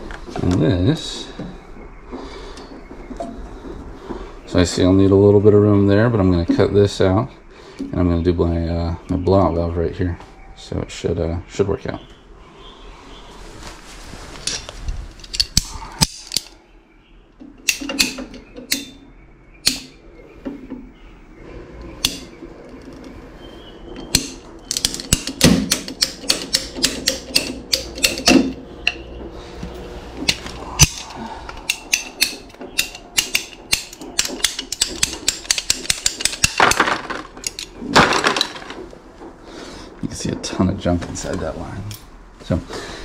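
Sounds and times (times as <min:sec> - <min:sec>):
plastic pipe clicking and snapping: 0:24.1 - 0:29.0.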